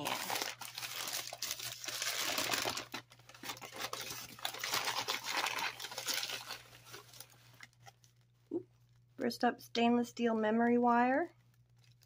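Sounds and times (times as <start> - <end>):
paper bag crinkling and rustling: 0.0 - 8.3.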